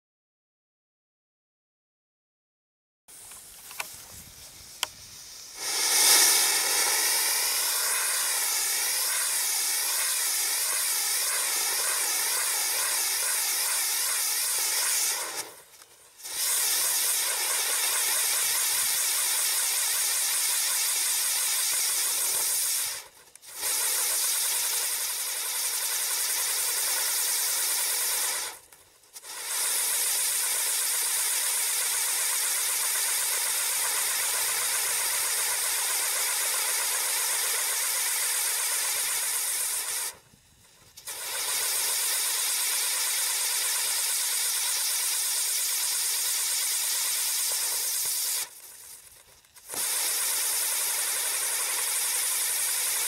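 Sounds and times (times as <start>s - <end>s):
spinning firework hissing: 3.1s - 53.0s
faint clicks: 3.2s - 4.1s.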